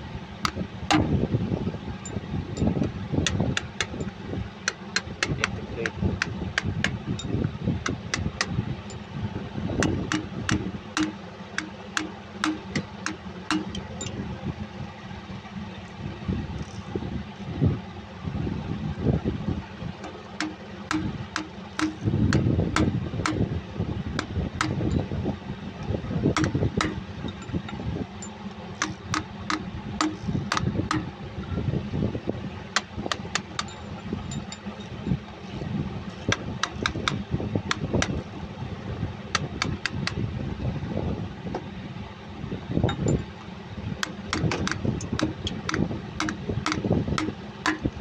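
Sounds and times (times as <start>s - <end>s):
steady low rumble: 0.0s - 48.0s
metal-on-metal taps: 0.4s - 1.2s, 2.0s - 9.1s, 9.8s - 14.2s, 20.0s - 23.5s, 24.2s - 25.1s, 26.3s - 31.1s, 32.8s - 35.0s, 36.1s - 38.2s, 39.3s - 40.2s, 44.0s - 48.0s.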